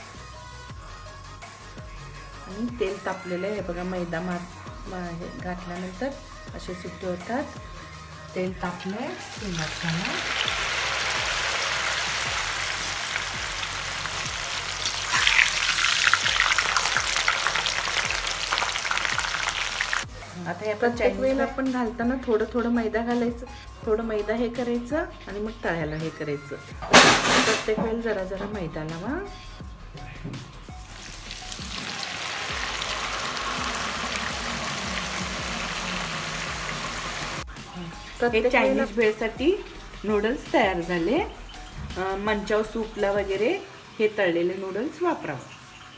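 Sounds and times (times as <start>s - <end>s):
noodles deep-frying in oil: 8.8s - 20.1s, 30.8s - 37.4s.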